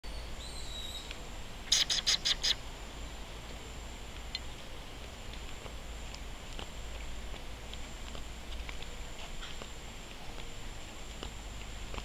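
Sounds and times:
faint high-pitched hum: 0:00.1 - 0:12.0
bird calling sharp high notes: 0:01.7 - 0:02.6.

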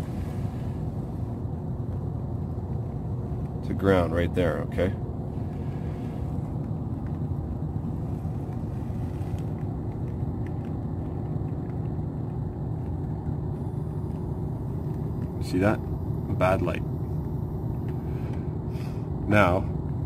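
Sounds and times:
low background rumble: 0:00.0 - 0:20.0.

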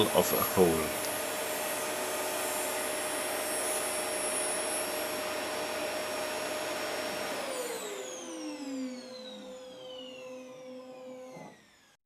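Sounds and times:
saw motor whirring: 0:07.6 - 0:12.0.

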